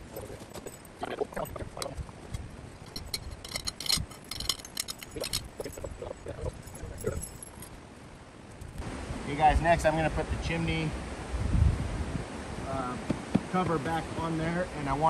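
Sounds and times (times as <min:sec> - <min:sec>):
soft rope handling noise: 0:00.0 - 0:07.8
small metal hardware clinking: 0:00.4 - 0:07.8.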